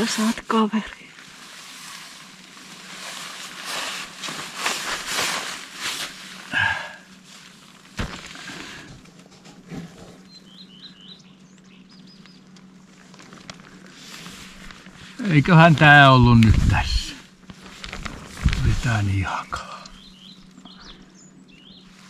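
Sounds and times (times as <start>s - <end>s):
tent fabric rustling: 1.2s - 8.6s, 12.9s - 19.2s
small bird chirping: 10.2s - 12.5s, 19.9s - 22.0s.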